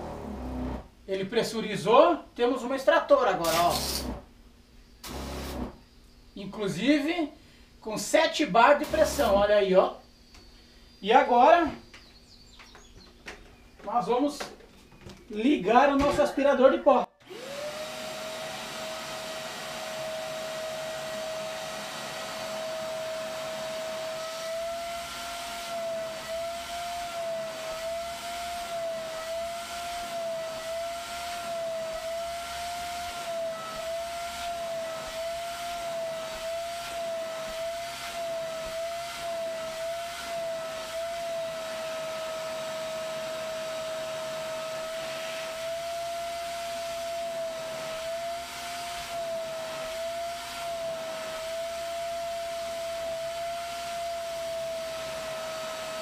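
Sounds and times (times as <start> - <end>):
vacuum motor whining: 0.0 - 1.0, 3.4 - 4.2, 5.0 - 5.8, 8.8 - 9.5, 17.2 - 56.0.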